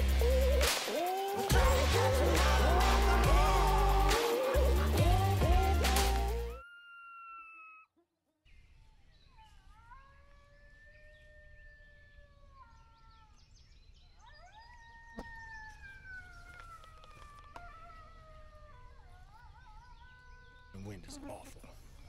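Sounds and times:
coyote pup howl: 1.0s - 7.9s, 9.4s - 13.4s, 14.2s - 20.8s
coyote howls from predator call: 6.5s - 7.9s, 9.4s - 13.4s, 14.2s - 21.3s.

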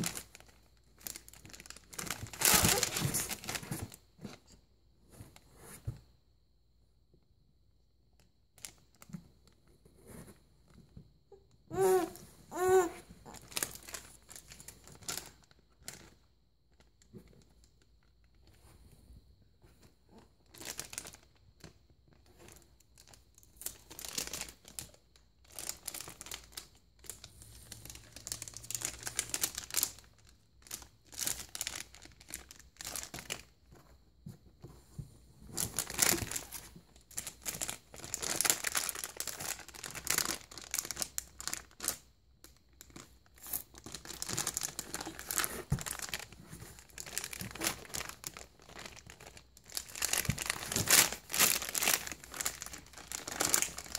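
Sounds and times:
foil bag crinkling: 0.0s - 4.0s, 22.5s - 33.5s, 35.6s - 42.1s, 42.8s - 53.9s.

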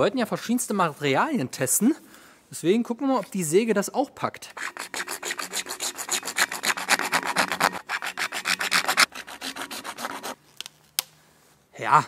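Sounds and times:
saw cutting plastic pipe: 4.6s - 10.4s.

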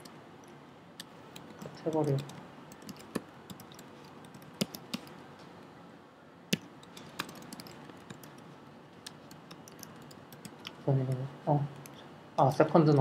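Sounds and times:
faint steady hiss: 0.0s - 13.0s
computer keyboard typing: 1.0s - 5.2s, 6.5s - 12.0s.

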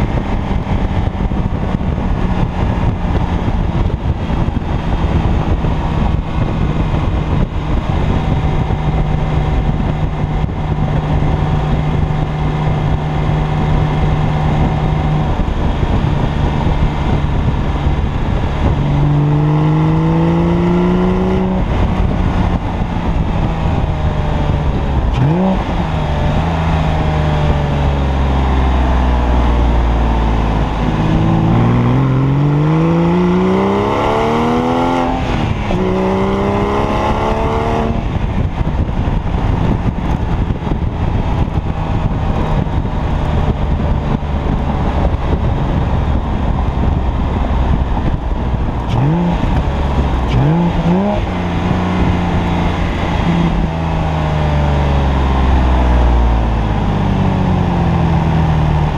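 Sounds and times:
car engine accelerating hard: 0.0s - 58.9s.

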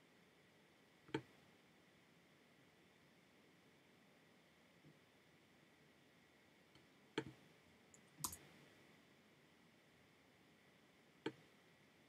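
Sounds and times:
computer mouse clicks: 7.2s - 8.4s.

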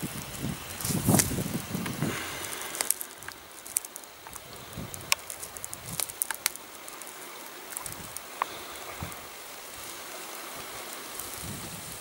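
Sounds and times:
dry vegetation rustling and crackling: 0.0s - 12.0s
faint steady hiss: 0.0s - 12.0s
sharp snaps: 0.7s - 8.6s.

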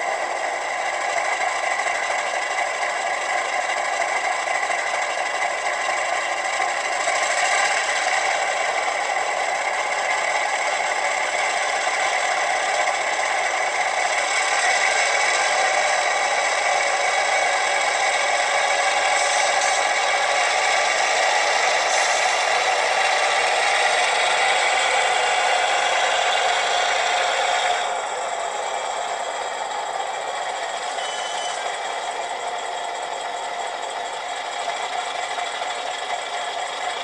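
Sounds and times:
model locomotive diesel engine sound: 0.0s - 37.0s.

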